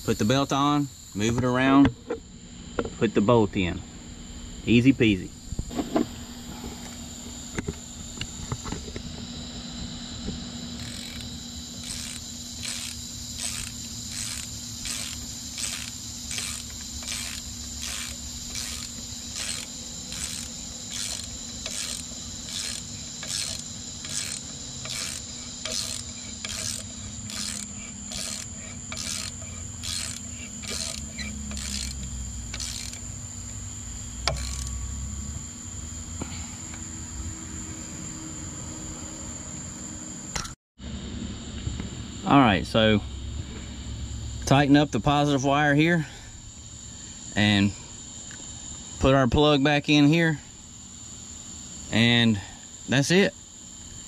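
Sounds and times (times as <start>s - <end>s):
high insect trill: 0.0s - 54.0s
ratchet wrench clicking: 10.8s - 33.0s, 34.2s - 34.8s.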